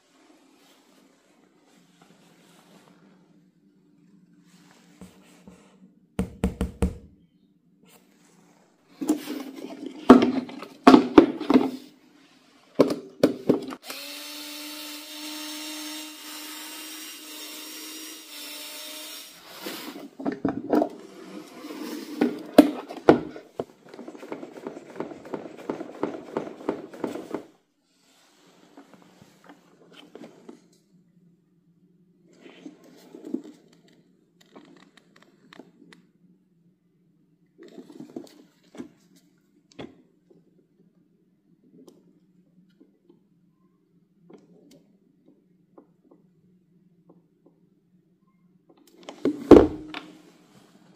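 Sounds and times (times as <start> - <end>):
small electric motor running: 13.8 - 19.6.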